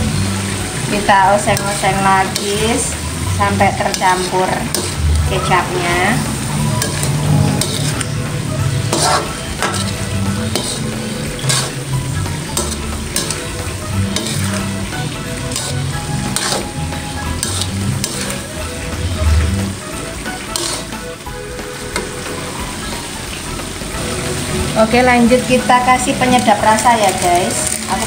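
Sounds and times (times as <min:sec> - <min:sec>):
sauce sizzling: 0:00.0 - 0:28.0
spatula scraping a wok: 0:01.4 - 0:21.1.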